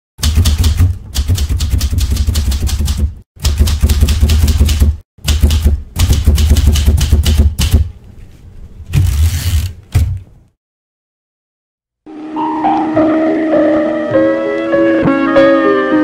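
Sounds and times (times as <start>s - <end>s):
manual typewriter keystrokes: 0.2s - 7.9s.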